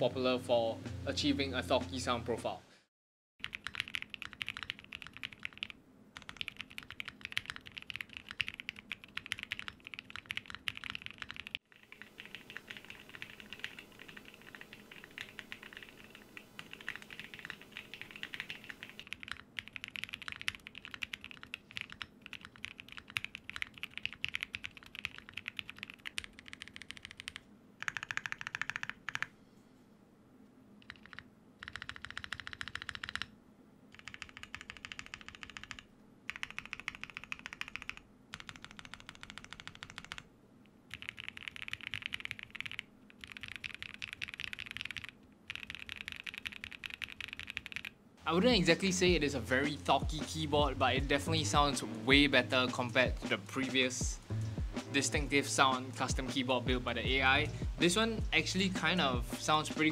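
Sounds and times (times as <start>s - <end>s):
fast typing on mechanical keyboard: 3.4s - 29.3s, 30.8s - 33.3s, 33.9s - 40.3s, 40.9s - 47.9s.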